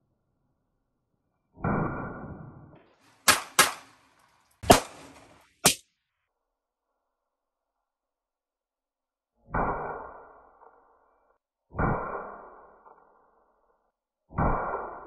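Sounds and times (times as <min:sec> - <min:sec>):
pistol shots: 0:03.2 - 0:04.0, 0:04.6 - 0:05.8.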